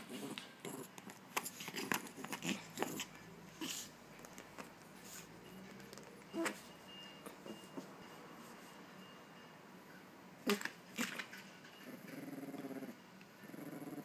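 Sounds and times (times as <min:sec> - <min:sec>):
teeth scraping hard plastic: 0:00.1 - 0:03.2.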